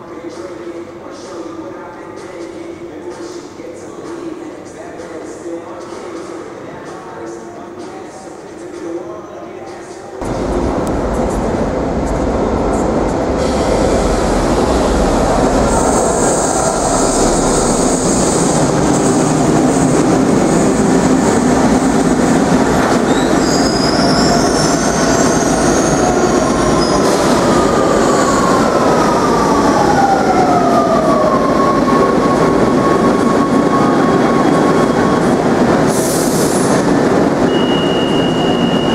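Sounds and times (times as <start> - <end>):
train wheels rumbling on track: 10.2 - 38.9
high wheel squeal: 37.5 - 38.9.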